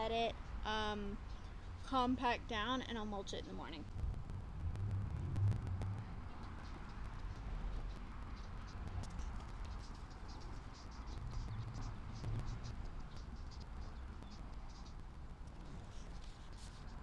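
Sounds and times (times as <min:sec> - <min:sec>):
low rumble: 0:03.8 - 0:09.6.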